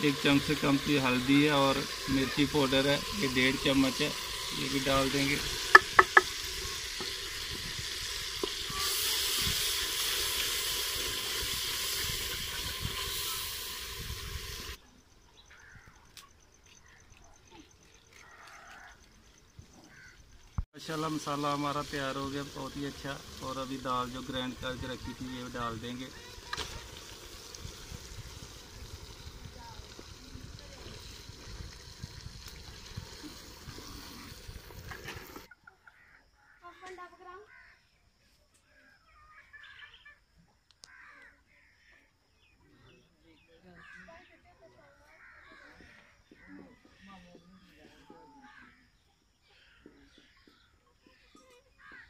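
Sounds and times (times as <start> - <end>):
masala sizzling in a metal pot: 0.0 - 14.8, 20.8 - 35.5
faint outdoor ambience: 0.0 - 52.0
wooden spoon stirring: 5.4 - 7.2.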